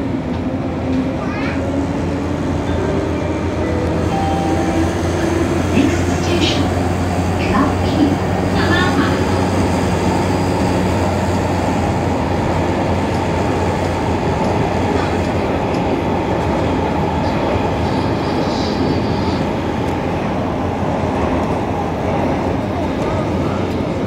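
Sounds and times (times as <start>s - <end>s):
metro train running in tunnel: 0.0s - 24.0s.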